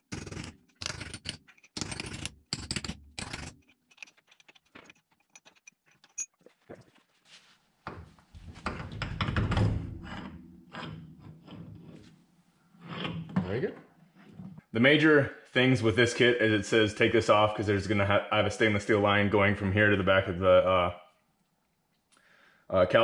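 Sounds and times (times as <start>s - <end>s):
metal parts clanking: 0.1s - 6.4s
metal scraping and rubbing: 8.5s - 14.7s.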